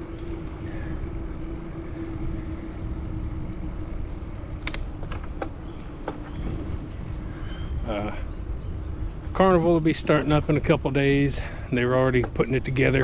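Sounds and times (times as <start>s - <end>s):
bicycle tyre noise: 0.0s - 13.0s
wind rumble on microphone: 0.0s - 13.0s
sharp clicks: 4.6s - 5.5s.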